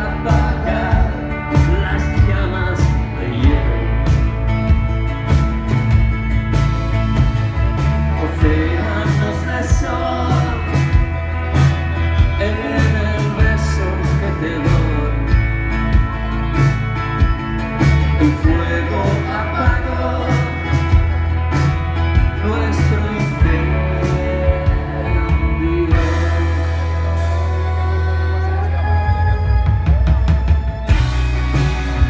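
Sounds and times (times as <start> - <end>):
man singing: 0.0 - 4.4, 8.0 - 15.9, 18.1 - 31.1
strummed acoustic guitar: 0.0 - 28.0
bass guitar: 0.0 - 32.0
drums keeping a steady beat: 0.0 - 32.0
keyboards: 0.0 - 32.0.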